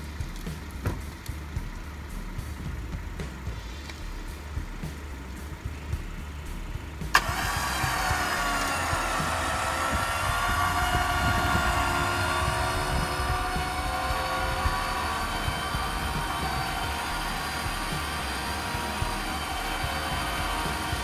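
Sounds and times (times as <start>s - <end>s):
winch clicking on: 7.1s - 16.8s
electric winch whining: 7.1s - 21.0s.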